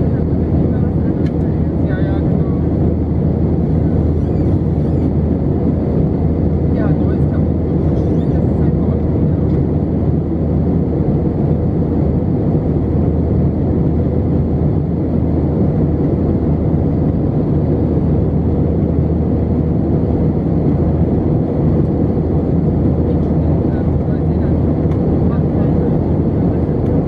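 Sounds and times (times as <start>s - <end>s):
airplane cabin engine rumble: 0.0s - 27.0s.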